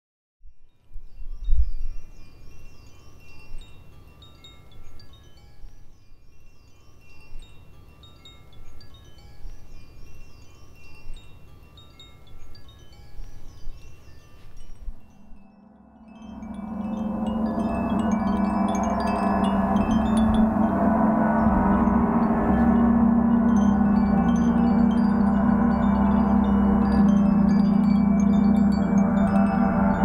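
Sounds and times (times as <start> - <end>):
metal chimes tinkling: 0.7 - 30.0
steady low rumble: 15.2 - 30.0.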